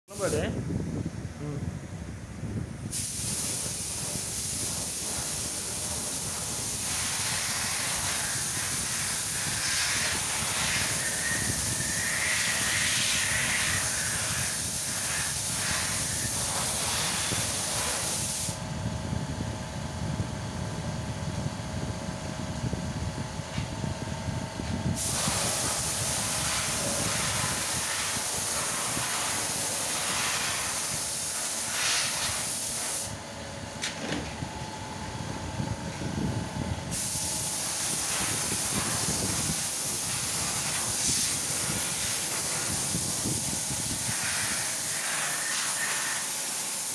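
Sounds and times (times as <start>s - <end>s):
paint spray gun hissing: 0.1s - 0.5s, 2.8s - 18.6s, 24.8s - 33.2s, 36.9s - 46.9s.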